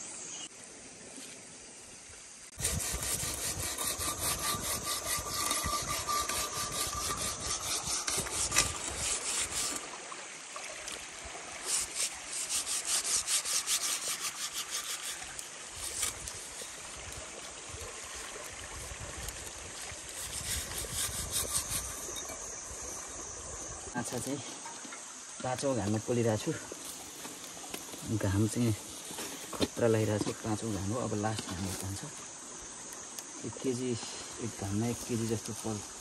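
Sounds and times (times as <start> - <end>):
metal tool scraping a pot: 2.6 - 9.8, 11.7 - 16.8, 20.2 - 22.5.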